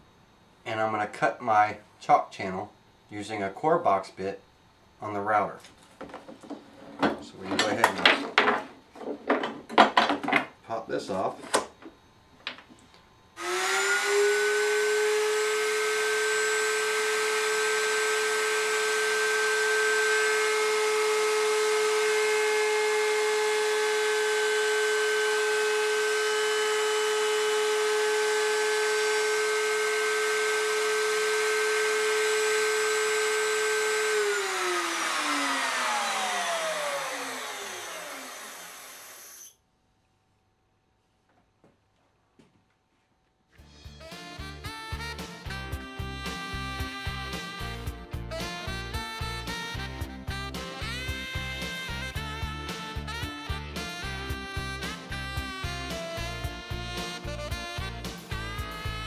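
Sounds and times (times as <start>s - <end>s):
router high whine: 13.4s - 39.6s.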